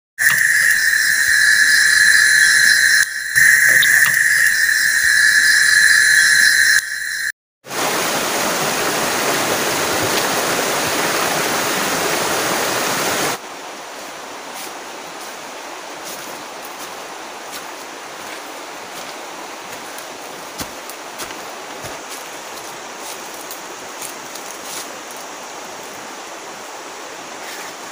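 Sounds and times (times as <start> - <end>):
insects shrilling: 0.2 - 7.3
river rushing over rocks: 7.7 - 13.5.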